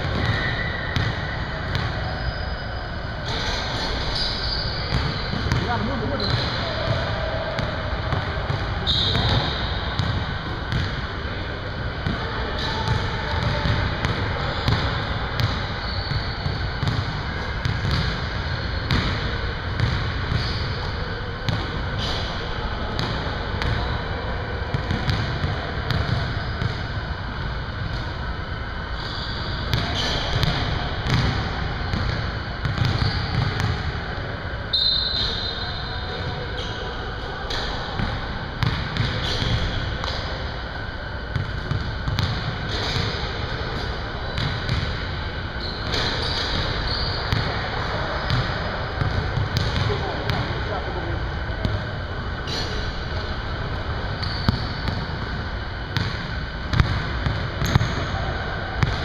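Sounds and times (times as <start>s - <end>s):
short high squeaks: 2.0s - 5.3s, 45.6s - 47.3s
basketballs bouncing on wood floor: 4.9s - 7.0s, 7.6s - 11.0s, 16.4s - 18.2s, 19.8s - 20.5s, 29.7s - 33.8s, 41.3s - 43.1s, 44.4s - 44.9s, 48.3s - 50.4s, 56.0s - 57.9s.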